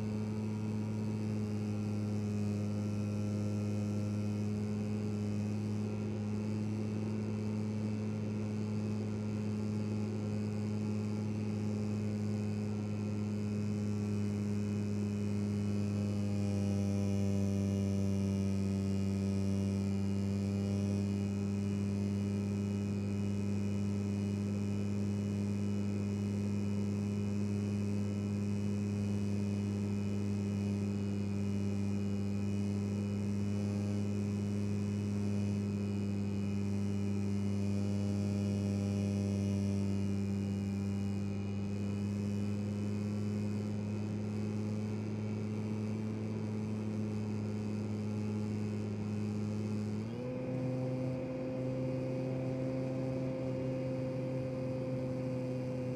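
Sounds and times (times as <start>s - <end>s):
electric motor and propeller drone: 32.4s - 55.9s.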